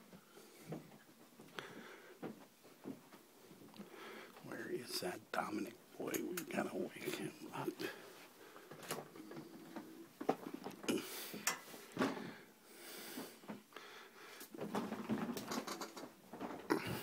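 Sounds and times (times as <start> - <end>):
heavy wheezy breathing: 1.5 - 2.3, 3.8 - 4.5, 10.9 - 14.5.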